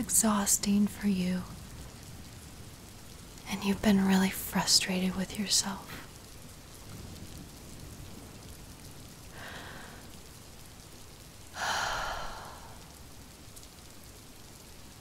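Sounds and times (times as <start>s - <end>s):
steady rain: 0.0s - 15.0s
person breathing: 9.3s - 10.2s, 11.6s - 12.8s.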